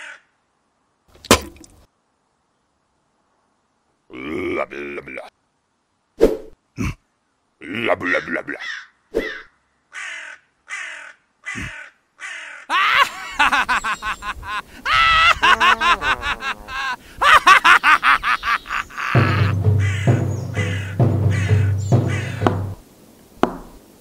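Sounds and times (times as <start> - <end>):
harsh cawing calls: 0.0 - 0.3, 8.1 - 22.8
music: 19.2 - 22.8.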